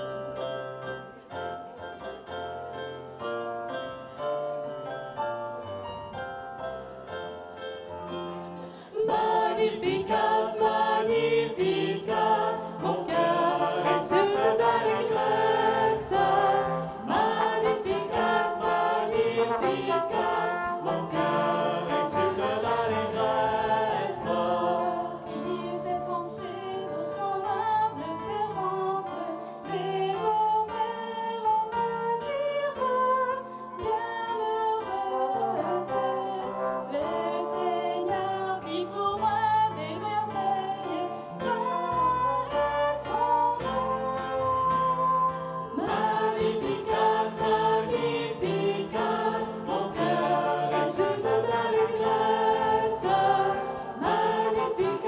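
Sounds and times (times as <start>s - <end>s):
group of singers: 8.4s - 55.0s.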